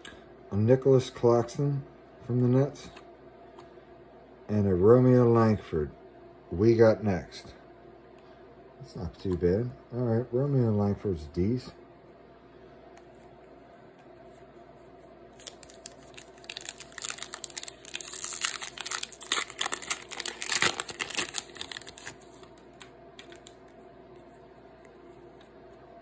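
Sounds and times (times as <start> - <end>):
foil wrapper crinkling and tearing: 15.4 - 23.6.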